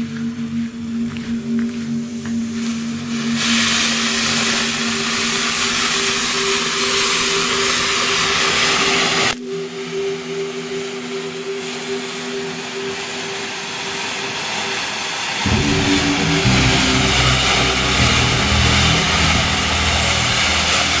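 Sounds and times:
synth music drone: 0:00.0 - 0:21.0
firework fountain hissing: 0:03.2 - 0:09.4, 0:11.6 - 0:21.0.

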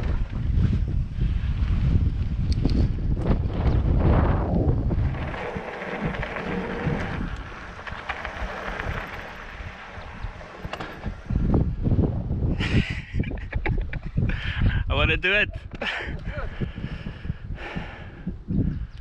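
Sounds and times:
wind buffeting microphone: 0:00.0 - 0:19.0
scattered clicks from bike: 0:02.2 - 0:03.7, 0:05.0 - 0:11.6
bike riding hiss: 0:05.0 - 0:11.4.

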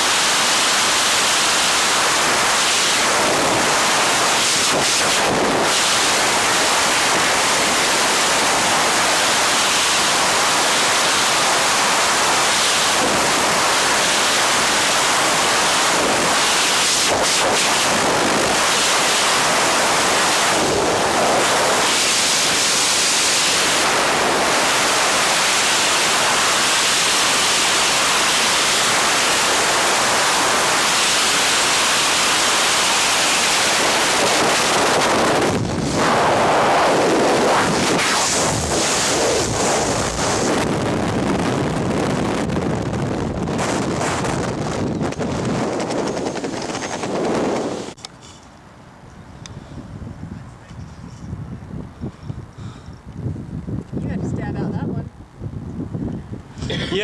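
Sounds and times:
wind buffeting microphone: 0:34.2 - 0:48.0, 0:49.0 - 0:57.0.

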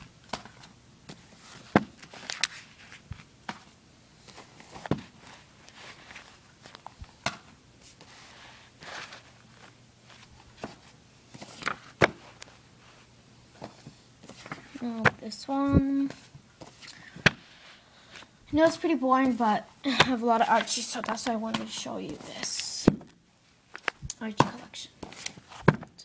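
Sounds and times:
paper rustling: 0:00.3 - 0:07.0, 0:07.8 - 0:13.0, 0:20.2 - 0:22.7
books thumping and knocking: 0:01.1 - 0:02.1, 0:04.7 - 0:05.2, 0:10.1 - 0:12.4, 0:13.6 - 0:17.4, 0:22.8 - 0:26.0.

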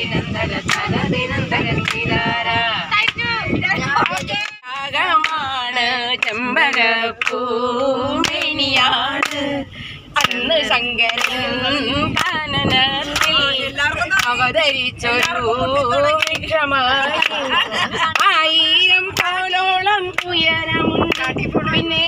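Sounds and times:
women singing together: 0:00.0 - 0:22.0
hand claps: 0:03.9 - 0:05.4, 0:06.2 - 0:07.4, 0:08.2 - 0:08.5, 0:09.2 - 0:09.4, 0:10.2 - 0:10.5, 0:11.1 - 0:11.4, 0:13.2 - 0:13.4, 0:15.2 - 0:15.4, 0:16.2 - 0:16.5, 0:17.1 - 0:18.4, 0:19.2 - 0:19.4, 0:20.1 - 0:20.3, 0:21.0 - 0:21.4.

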